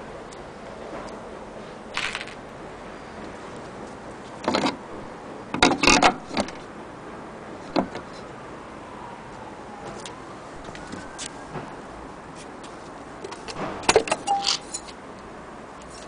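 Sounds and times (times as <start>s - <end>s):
light metallic clatters: 13.2s - 15.0s.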